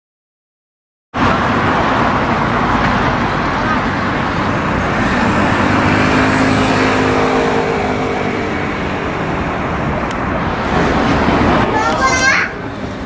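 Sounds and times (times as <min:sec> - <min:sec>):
traffic road noise: 0:01.1 - 0:13.0
vehicle engine hum: 0:01.2 - 0:13.0.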